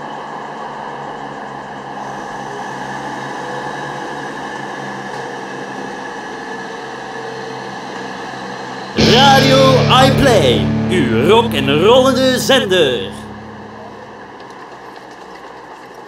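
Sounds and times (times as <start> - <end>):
steady tones: 9.0 - 14.2.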